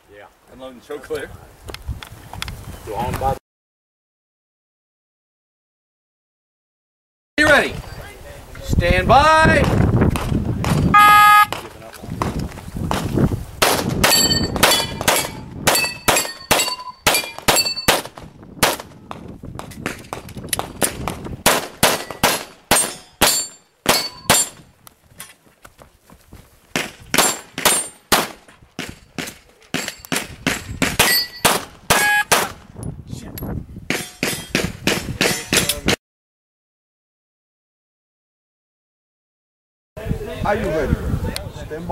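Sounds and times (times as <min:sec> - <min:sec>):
steel targets ringing: 0:14.1 - 0:17.9, 0:22.8 - 0:24.6, 0:31.1 - 0:31.5
rapid pistol shots: 0:21.4 - 0:24.5, 0:26.8 - 0:28.4.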